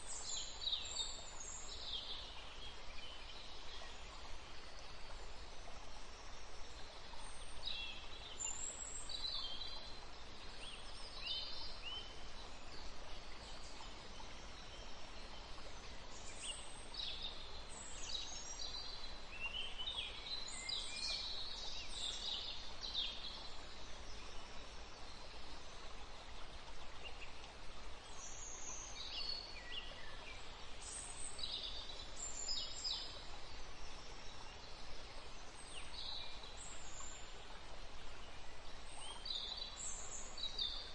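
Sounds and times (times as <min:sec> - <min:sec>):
songbirds chirping and twittering: 0:00.0 - 0:40.9.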